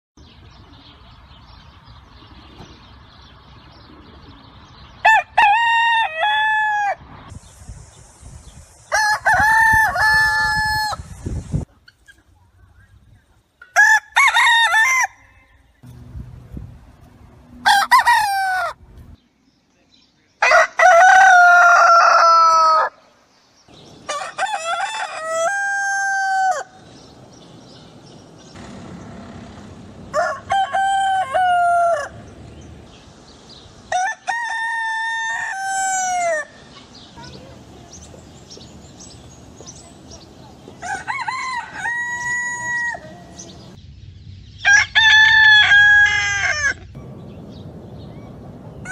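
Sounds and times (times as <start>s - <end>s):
rooster crowing: 8.9s - 11.0s, 13.8s - 15.6s, 17.6s - 18.8s, 20.4s - 23.0s, 24.1s - 26.8s, 30.0s - 32.3s, 33.9s - 36.6s, 40.8s - 43.5s, 44.7s - 46.8s.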